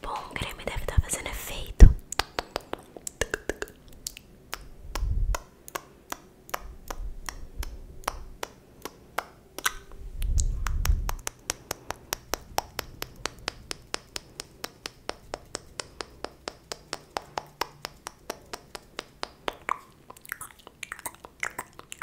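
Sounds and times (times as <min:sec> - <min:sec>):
low muffled thumps: 0:01.8 - 0:02.0.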